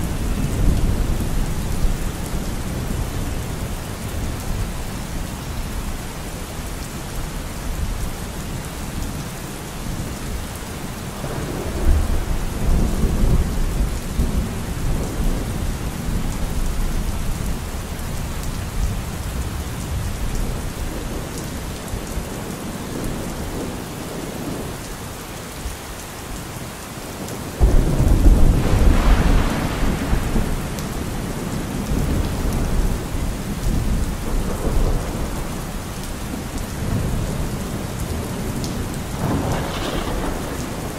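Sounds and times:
steady rain: 0:00.0 - 0:40.9
rolling thunder: 0:11.2 - 0:17.5, 0:27.6 - 0:40.9.

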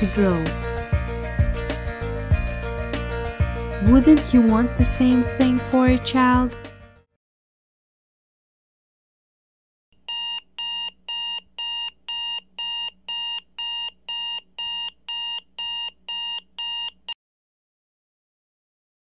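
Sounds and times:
alarm clock beeping: 0:10.1 - 0:17.1.

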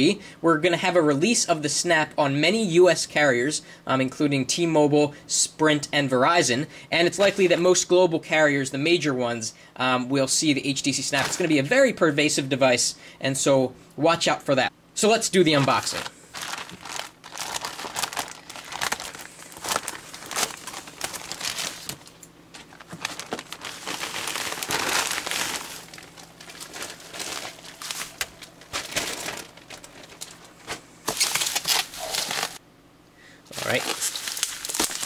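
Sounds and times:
plastic bag and bubble wrap crinkling: 0:15.5 - 0:32.6, 0:33.5 - 0:35.0.

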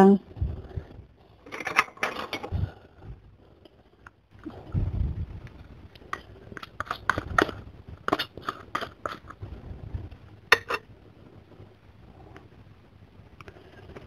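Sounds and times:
metal spoon scraping plastic cup: 0:06.1 - 0:09.4.

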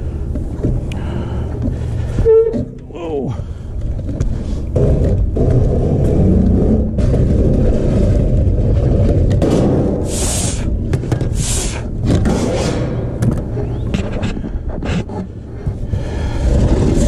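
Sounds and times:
wind rumble on microphone: 0:03.5 - 0:17.0.

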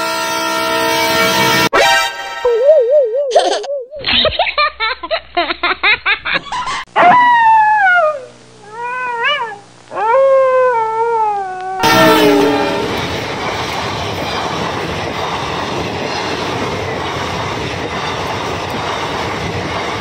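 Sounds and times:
comic wobbling warble: 0:01.8 - 0:04.0, 0:11.8 - 0:13.5.

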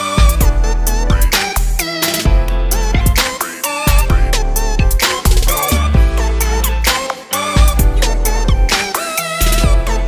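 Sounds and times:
heavy bass line: 0:00.2 - 0:03.3, 0:03.9 - 0:06.9, 0:07.6 - 0:08.7, 0:09.4 - 0:10.0
steady drum beat: 0:02.9 - 0:07.0, 0:07.6 - 0:09.9.

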